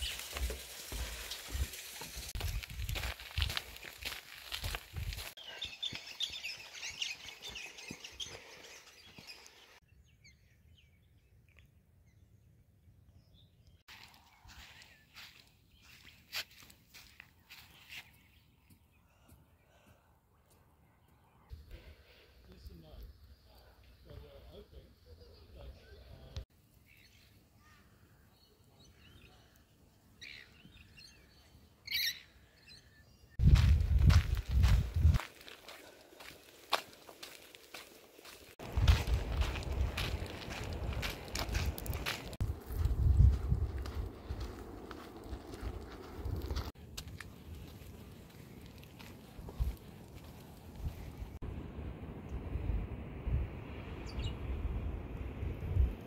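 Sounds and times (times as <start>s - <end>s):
close loud footsteps: 0.0s - 9.4s, 33.4s - 51.1s
birds chirping and twittering: 2.4s - 19.6s, 22.9s - 35.5s, 54.0s - 54.5s
bird chirps: 5.4s - 12.5s, 30.2s - 33.4s
low rumbling noise: 51.4s - 56.0s.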